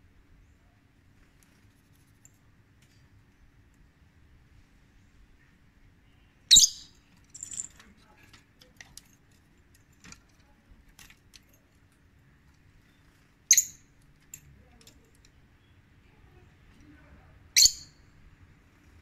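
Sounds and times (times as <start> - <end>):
lovebird shrill calls: 6.5 - 7.0, 13.5 - 13.8, 17.6 - 18.0
soft high bird call: 6.5 - 7.0.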